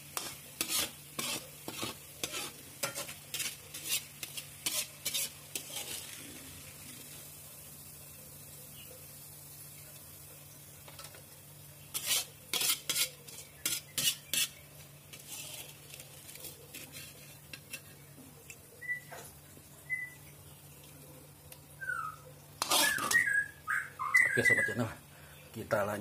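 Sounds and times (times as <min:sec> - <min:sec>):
metal spatula scraping wok: 0:00.0 - 0:06.4, 0:11.8 - 0:18.0, 0:22.6 - 0:23.4.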